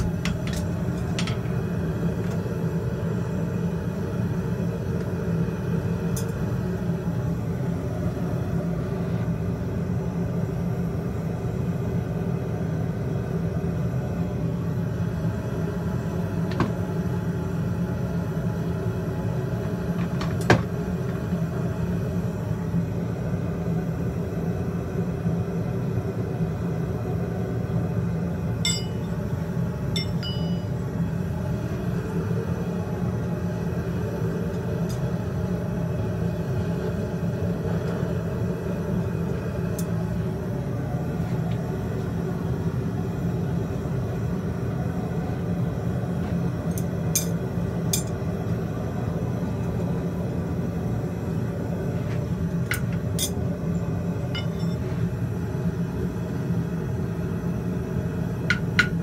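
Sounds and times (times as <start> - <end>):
gas forge rushing: 0.0 - 59.0
light metallic clink: 28.7 - 29.1, 30.0 - 30.7.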